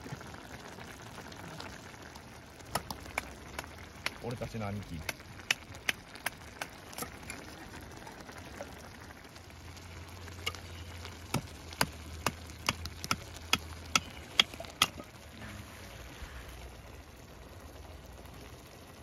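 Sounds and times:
food popping in a pan: 0.0s - 15.3s.

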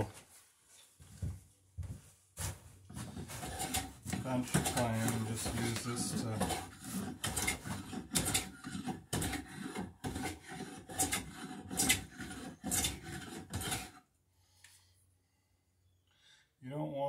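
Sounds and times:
hand plane shaving wood: 2.9s - 14.0s.

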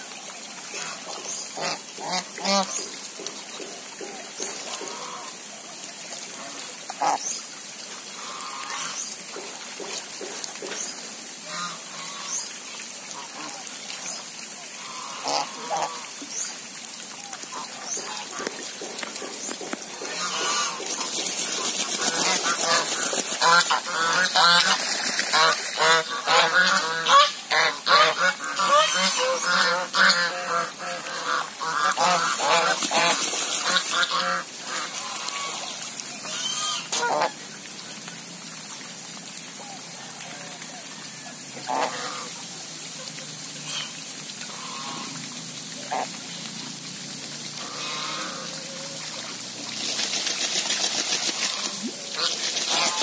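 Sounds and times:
water splashing: 0.0s - 53.0s
geese honking: 14.8s - 16.1s, 22.0s - 37.3s
wings flapping: 20.7s - 23.7s, 24.6s - 25.4s, 32.6s - 34.0s, 49.7s - 53.0s.

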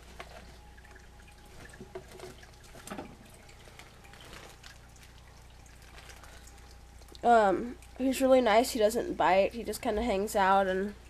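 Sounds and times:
rustling in plastic tank: 0.0s - 7.0s
faint water trickle: 0.0s - 11.0s
steady low hum: 0.0s - 11.0s.

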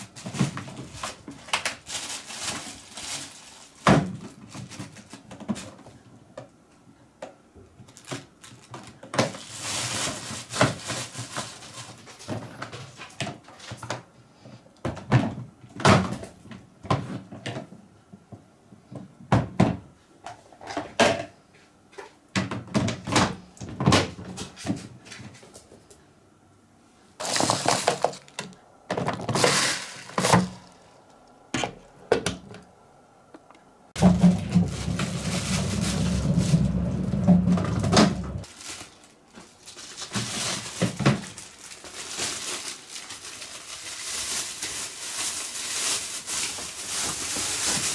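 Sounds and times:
plastic film crinkling: 0.0s - 5.8s, 7.8s - 13.1s, 27.2s - 31.9s, 34.0s - 47.9s
cat litter rattling into bin: 0.0s - 5.9s, 7.8s - 14.0s, 27.2s - 31.0s, 34.0s - 47.9s.

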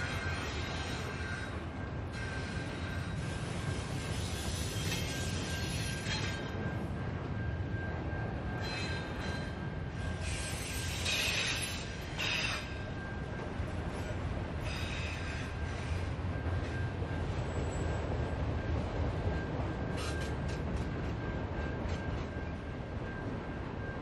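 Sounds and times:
train wheels rumbling on rail: 0.0s - 24.0s
high-pitched wheel squeal: 19.9s - 20.6s.

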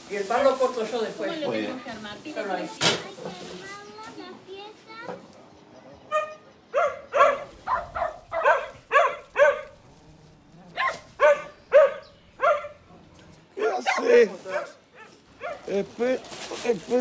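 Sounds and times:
dog barking: 6.1s - 9.8s, 10.7s - 15.7s.

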